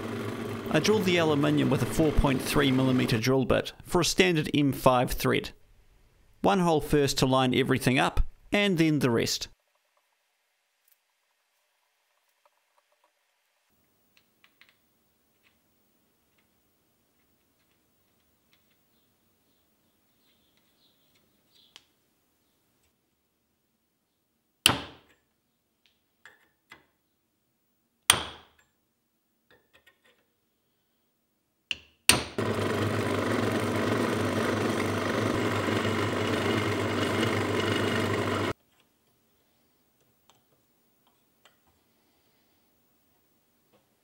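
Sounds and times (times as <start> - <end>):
motor running: 0.0 - 3.2, 32.4 - 38.5.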